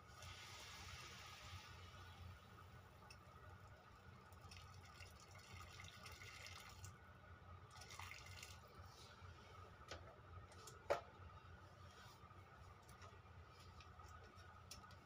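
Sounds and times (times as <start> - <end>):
water heating in a pot hiss: 0.0 - 7.0.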